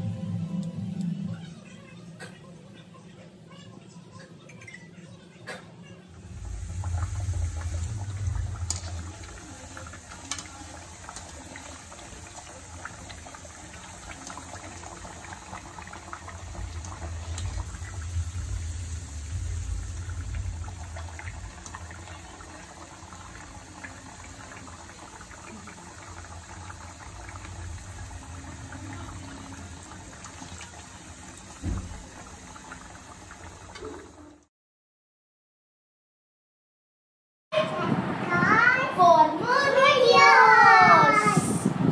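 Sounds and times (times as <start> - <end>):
low rumble: 0.0 - 1.7, 6.1 - 33.7
hot oil sizzling and bubbling: 6.0 - 34.5
thump: 31.6 - 32.0.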